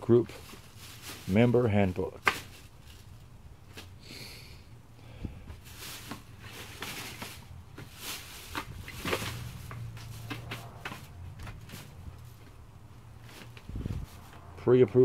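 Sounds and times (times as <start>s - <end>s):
plastic bag crinkling: 0.4s - 3.3s.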